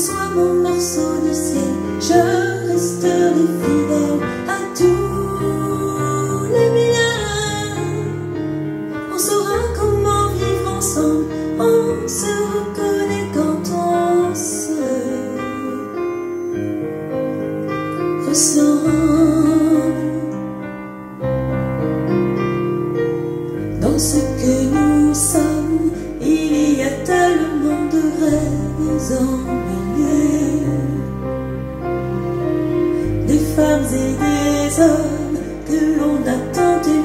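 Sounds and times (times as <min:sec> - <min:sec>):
woman singing: 0:00.0 - 0:08.4, 0:09.0 - 0:16.2, 0:18.2 - 0:20.4, 0:23.7 - 0:31.2, 0:33.2 - 0:37.0
piano accompaniment: 0:00.0 - 0:37.0.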